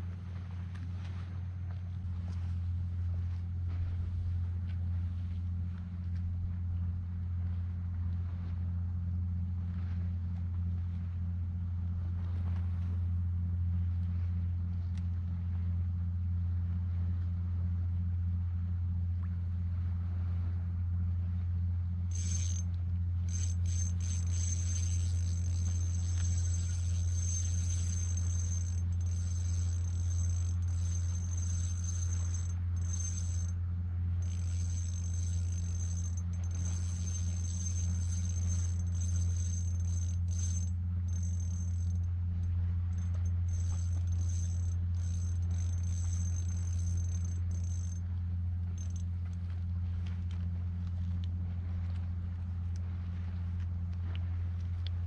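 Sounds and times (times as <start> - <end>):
low mechanical hum: 0.0 - 55.0
thin high-pitched tone: 22.1 - 22.6, 23.3 - 33.6, 34.2 - 42.0.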